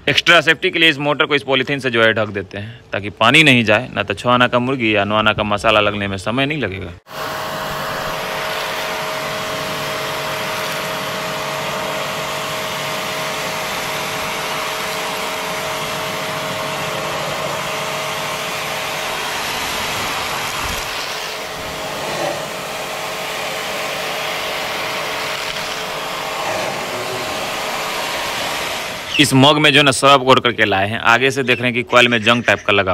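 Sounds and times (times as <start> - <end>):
pressure washer water jet hissing: 7.1 - 30.0
faint motor hum: 7.1 - 32.4.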